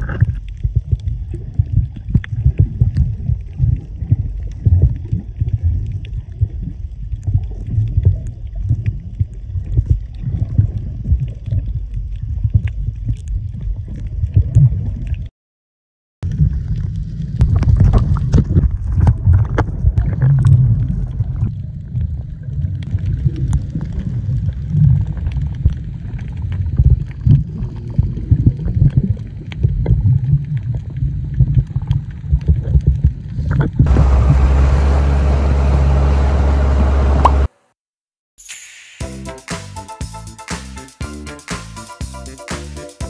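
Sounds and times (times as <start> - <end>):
water sloshing and gurgling: 0.0 - 15.3, 16.2 - 36.0.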